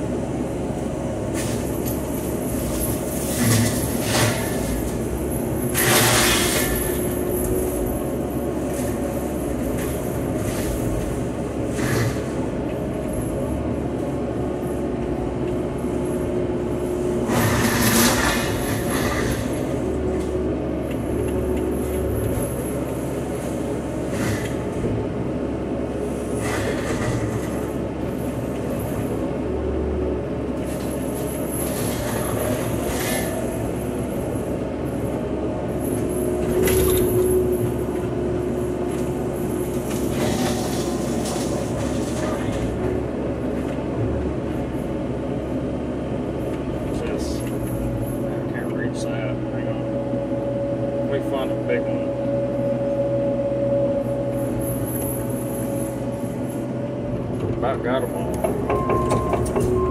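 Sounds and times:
excavator engine running: 0:00.0 - 0:59.9.

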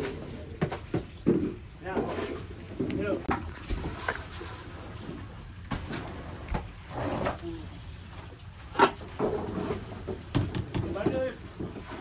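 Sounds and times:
scattered knocks and clatters: 0:08.8 - 0:11.8.

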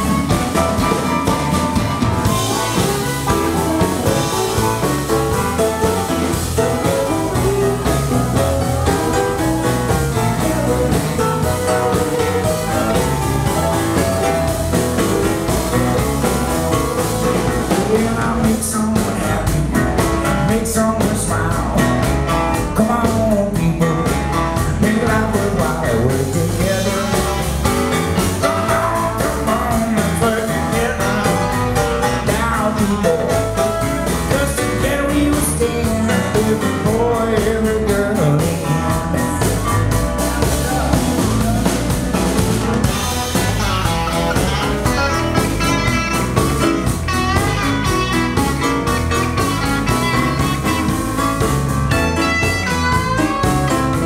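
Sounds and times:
harmonica: 0:00.0 - 0:18.1, 0:39.4 - 0:54.0
drums: 0:00.0 - 0:54.0
electric guitar: 0:00.0 - 0:54.0
keyboards: 0:00.0 - 0:54.0
man singing: 0:02.2 - 0:54.0.

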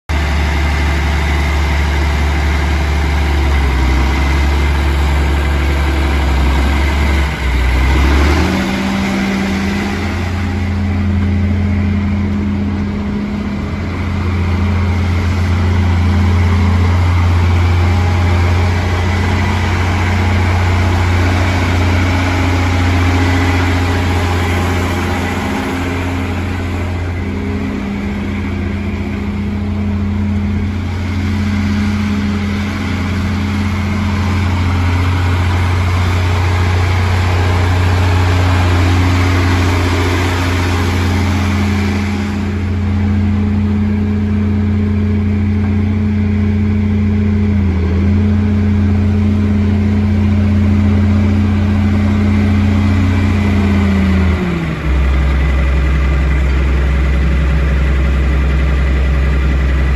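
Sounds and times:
diesel tractor engine running: 0:00.0 - 0:59.9.

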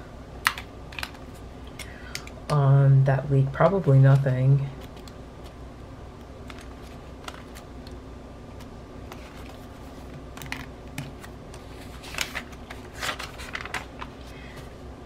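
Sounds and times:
paper pages rustling: 0:06.4 - 0:07.7, 0:09.0 - 0:14.6.

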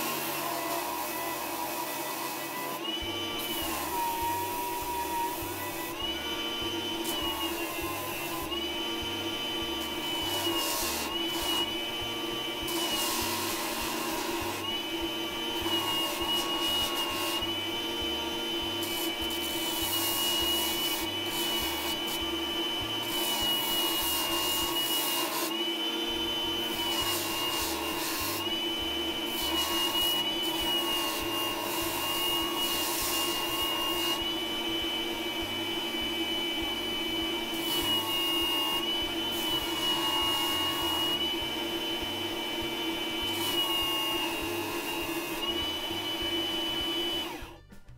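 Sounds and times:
food processor motor whine: 0:00.0 - 0:47.9
chisel grinding on sanding disc: 0:03.3 - 0:25.5, 0:26.2 - 0:41.4.

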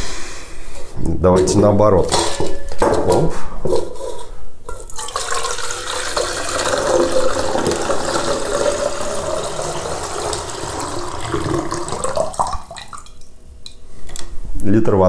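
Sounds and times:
water pouring into a pot: 0:04.7 - 0:13.4.

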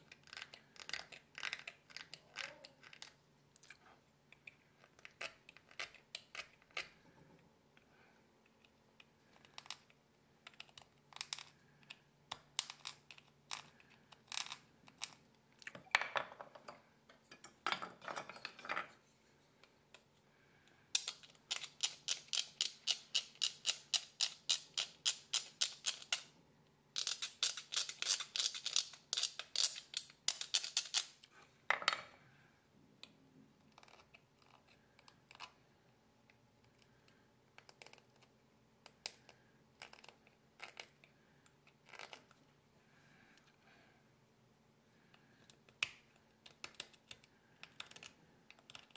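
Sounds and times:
carving blade scraping nut: 0:00.1 - 0:03.2, 0:04.8 - 0:07.0, 0:21.5 - 0:26.3, 0:27.0 - 0:31.1, 0:37.6 - 0:41.0, 0:41.8 - 0:42.3.

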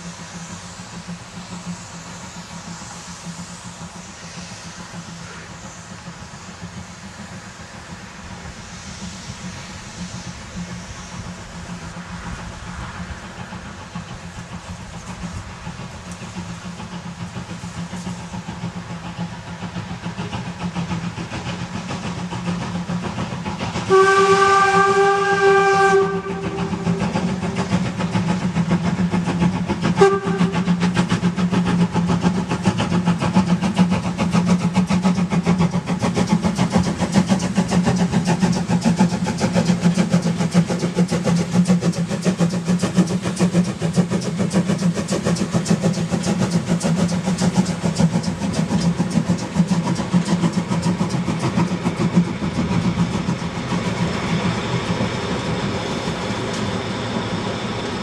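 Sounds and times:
steam locomotive exhaust beats: 0:00.0 - 0:58.0
steam whistle: 0:23.9 - 0:27.5, 0:29.8 - 0:31.0.

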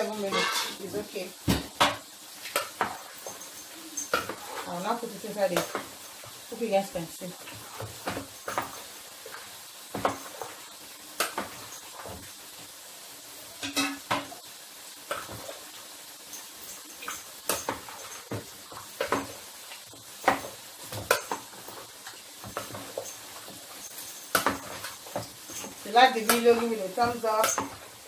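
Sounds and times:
chips sizzling in a pan: 0:00.0 - 0:28.0.

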